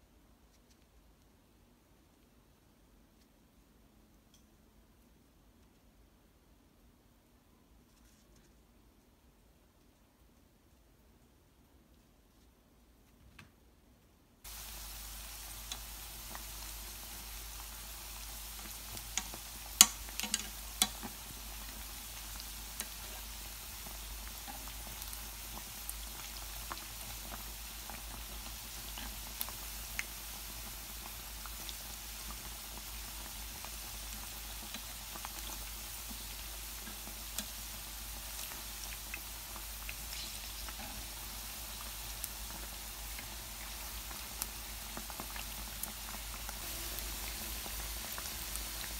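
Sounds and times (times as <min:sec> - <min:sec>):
food deep-frying in oil: 0:14.4 - 0:48.9.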